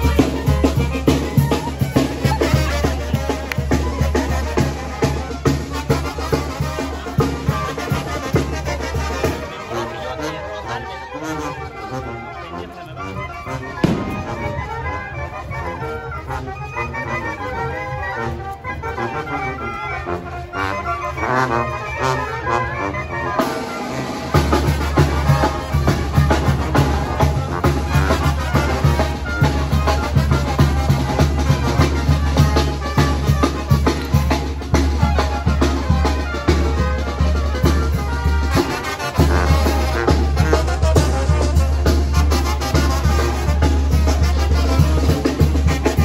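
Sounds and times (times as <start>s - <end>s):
band playing festive music: 0.0s - 46.0s
steady drum beat: 13.8s - 14.6s.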